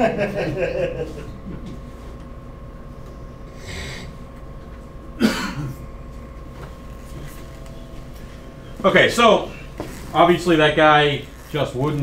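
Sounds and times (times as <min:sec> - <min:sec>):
faint room hum: 0:00.0 - 0:12.0
short cough: 0:05.2 - 0:05.8.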